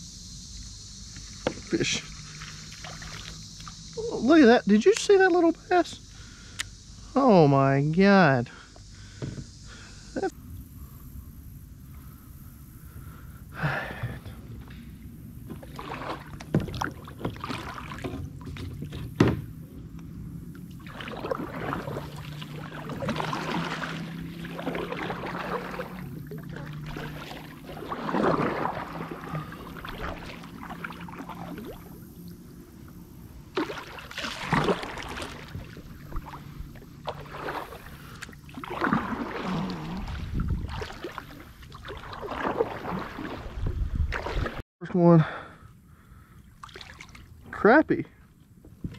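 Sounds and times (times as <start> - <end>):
paddle splashing through water: 1.2 - 3.8, 13.6 - 44.6, 46.5 - 47.5.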